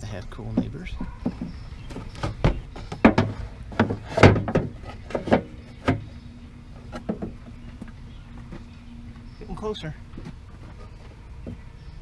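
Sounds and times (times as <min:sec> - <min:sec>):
battery tray knocking and clunking: 0:00.5 - 0:06.2.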